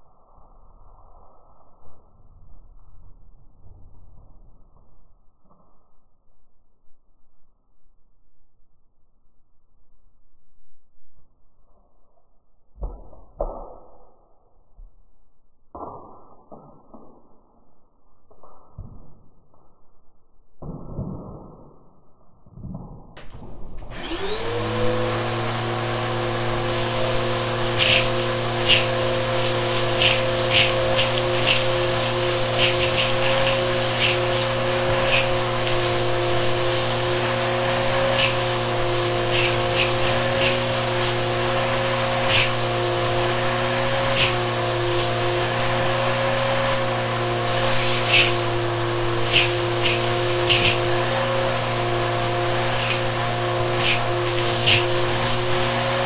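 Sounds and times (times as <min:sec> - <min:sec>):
vacuum cleaner whining: 0:23.2 - 0:56.0
grit rattling up hose: 0:23.3 - 0:51.8, 0:52.5 - 0:56.0.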